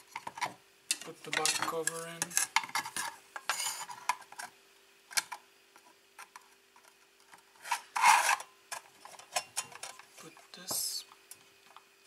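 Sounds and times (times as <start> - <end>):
metal-on-metal scrape: 1.4 - 4.2, 7.5 - 10.0.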